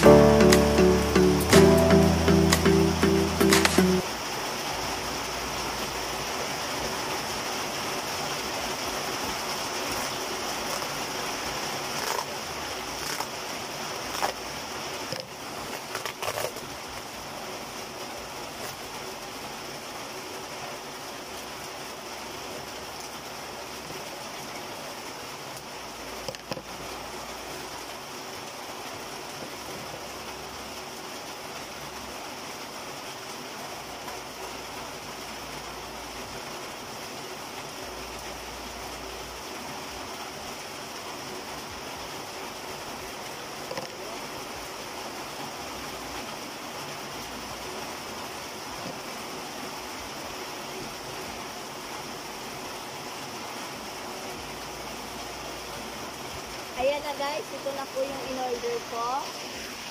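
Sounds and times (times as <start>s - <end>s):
rain on a metal roof: 0.0s - 59.9s
scissors cutting plastic wrap: 13.0s - 13.3s, 15.7s - 16.6s.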